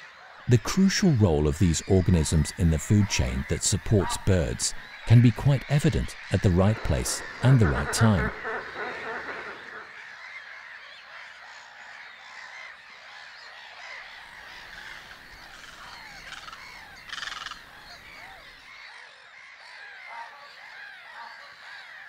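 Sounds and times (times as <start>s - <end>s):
loud harsh bird call: 0.0s - 11.2s
gulls and waterfowl calling: 0.0s - 22.0s.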